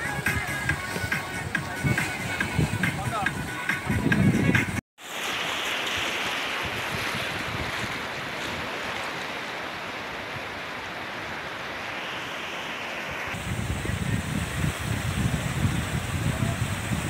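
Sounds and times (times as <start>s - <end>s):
wind buffeting the microphone: 0.0s - 4.8s, 6.6s - 8.8s, 13.3s - 17.0s
small waves breaking on beach: 5.0s - 17.0s.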